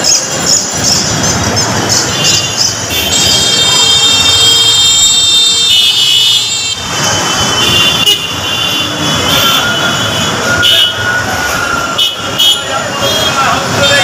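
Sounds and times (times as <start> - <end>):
city street traffic: 0.0 - 14.0
high-pitched vehicle horn: 2.1 - 11.2.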